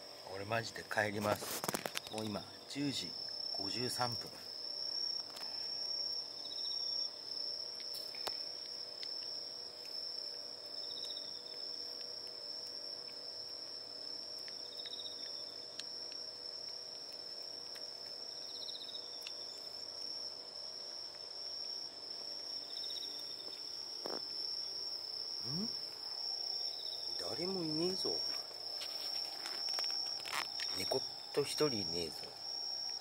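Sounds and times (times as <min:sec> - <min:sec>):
crickets trilling: 0:00.0 - 0:33.0
insect pulsed chirp: 0:00.0 - 0:33.0
cat eating from a plate: 0:07.2 - 0:23.3.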